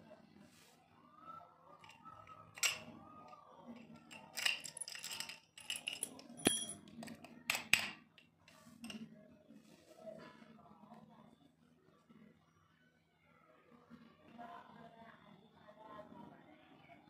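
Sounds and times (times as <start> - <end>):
keys clinking in padlock: 2.6 - 2.8, 3.8 - 6.9
lock set down on concrete: 4.1 - 8.0.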